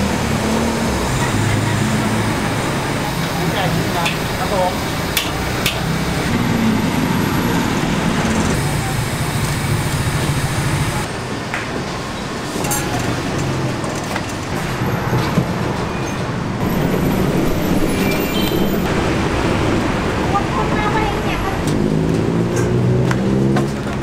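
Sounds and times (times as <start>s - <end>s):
street traffic rumble: 0.0s - 24.0s.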